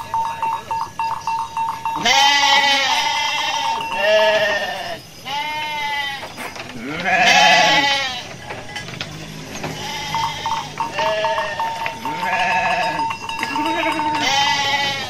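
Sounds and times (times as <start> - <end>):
sheep bleating: 2.0 - 8.4, 9.6 - 15.0.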